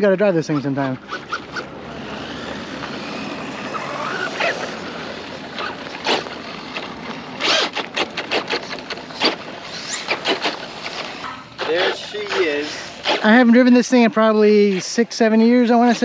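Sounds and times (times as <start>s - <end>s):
tyres scrabbling on gravel: 0.4s - 13.6s
electric motor whine: 0.9s - 14.4s.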